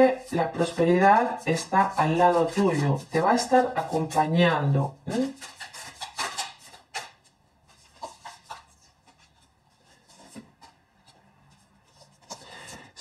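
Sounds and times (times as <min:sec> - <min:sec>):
cards tapping and sliding: 0:05.1 - 0:10.8.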